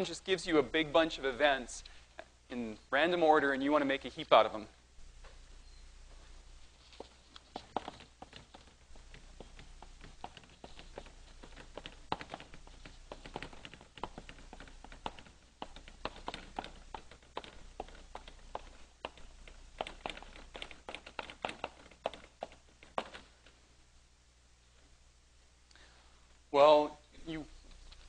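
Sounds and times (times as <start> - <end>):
chalk tapping on blackboard: 7.0 - 23.2.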